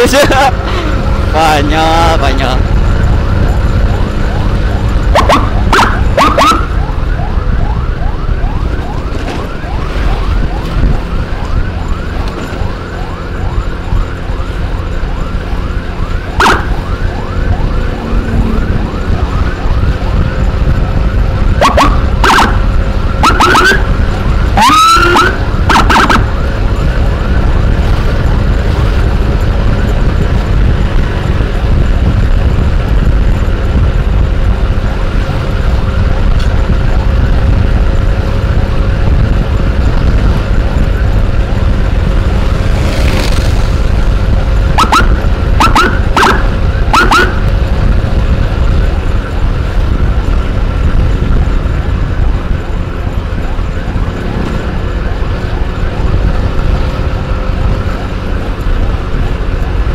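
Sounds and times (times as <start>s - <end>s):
low riding rumble: 0.0s - 23.2s
emergency siren yelping: 0.0s - 32.8s, 43.5s - 59.9s.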